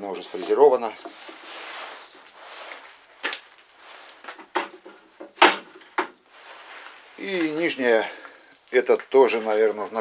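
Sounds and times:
heavy metal clunks: 4.4 - 6.2.

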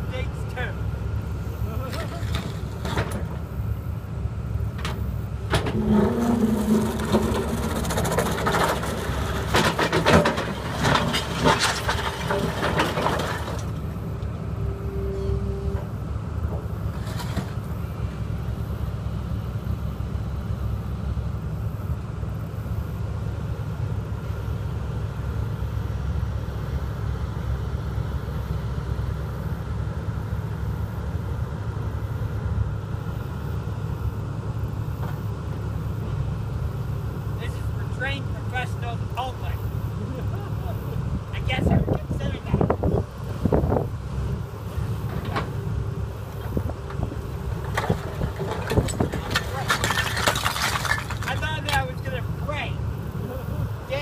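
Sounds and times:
excavator diesel engine running: 0.0 - 54.0
bucket clattering on rubble: 5.5 - 13.8, 47.5 - 52.1.

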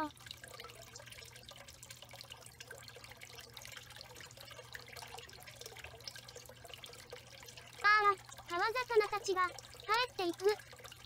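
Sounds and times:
low steady hum: 0.0 - 11.0
water trickling and dripping: 0.0 - 11.0.

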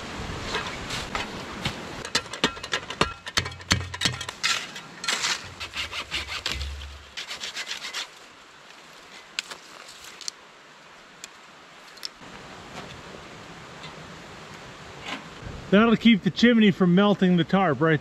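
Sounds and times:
snow shovel scraping snow: 0.4 - 2.0, 4.4 - 8.3
hand saw rasping through branch: 4.1 - 8.3.

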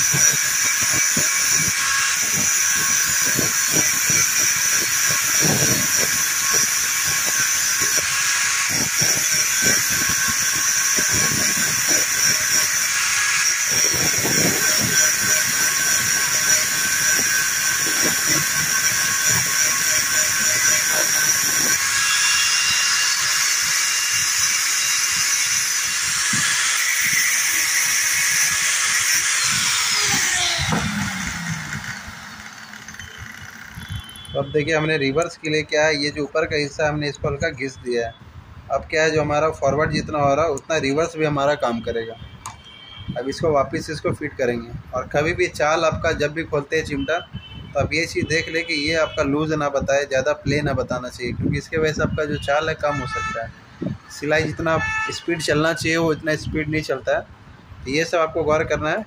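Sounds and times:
metal scraping on grinding disc: 0.0 - 35.4
angle grinder whining: 0.0 - 37.9, 52.0 - 56.5.

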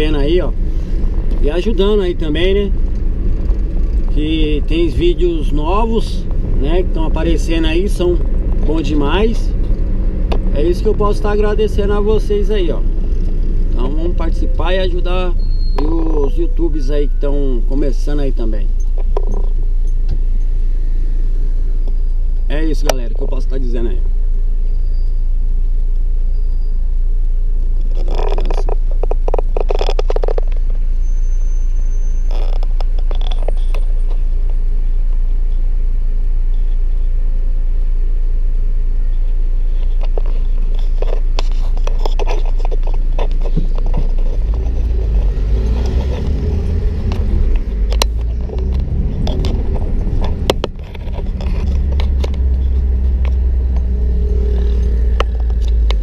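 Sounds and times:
car engine rumble from inside: 0.0 - 56.0
clicks and scrapes: 27.9 - 30.7, 39.8 - 56.0.

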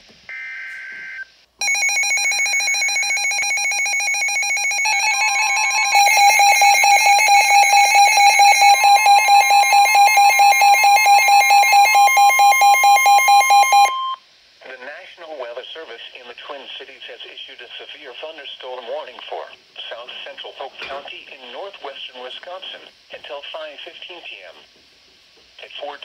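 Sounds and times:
long steady warning tone: 0.3 - 14.2
raspy data tone: 3.0 - 14.2
rapidly pulsing alert tone: 4.5 - 9.4.

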